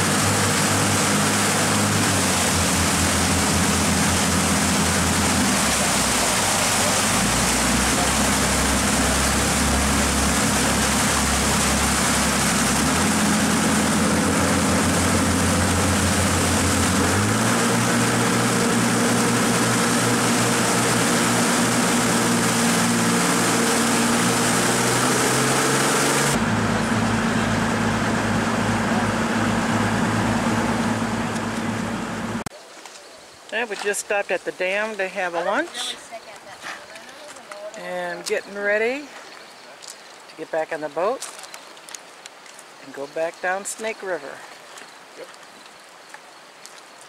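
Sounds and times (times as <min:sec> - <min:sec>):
boat engine running: 0:00.0 - 0:32.5
rushing rapids water: 0:00.0 - 0:47.0.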